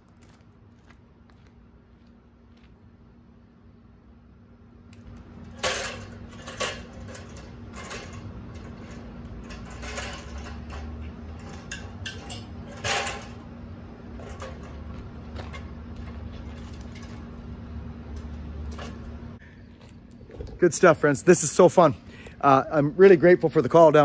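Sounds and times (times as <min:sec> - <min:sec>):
steady low hum: 0:00.0 - 0:24.0
metal ladder clanking and rattling: 0:05.1 - 0:17.5, 0:18.2 - 0:19.1.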